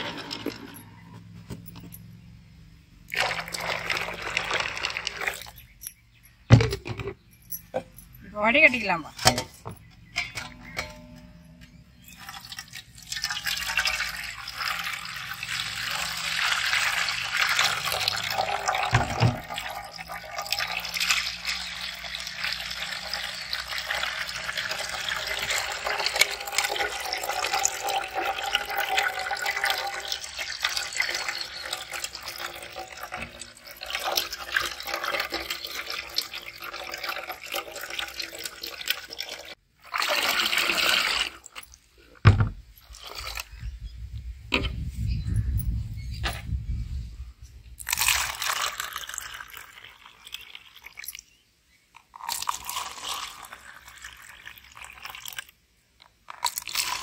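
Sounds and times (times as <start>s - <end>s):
juice pouring and splashing: 0.0s - 0.8s, 3.1s - 5.7s, 12.0s - 43.6s, 47.8s - 57.0s.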